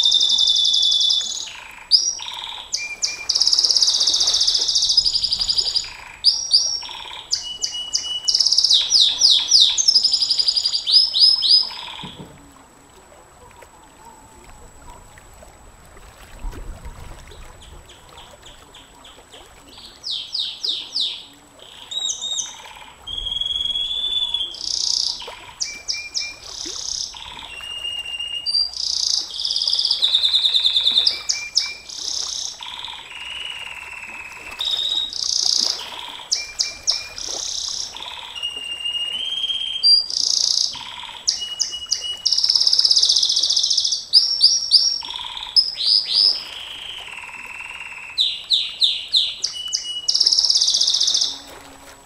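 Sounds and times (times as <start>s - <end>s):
canary singing: 0.0s - 12.2s.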